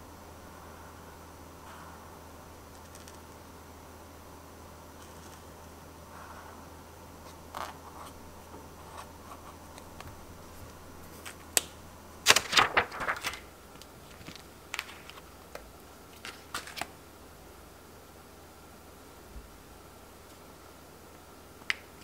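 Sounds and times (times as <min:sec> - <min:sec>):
plastic sheet crackling: 0:08.8 - 0:15.3.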